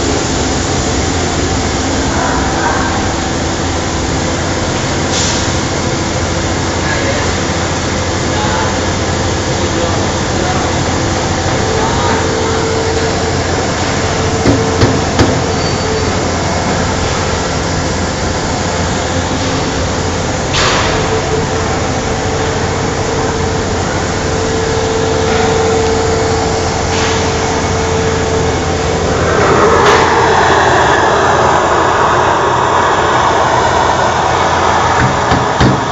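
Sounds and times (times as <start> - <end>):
low machine hum: 0.0 - 35.9
rushing air: 25.3 - 35.9
sharp knocks: 35.0 - 35.9.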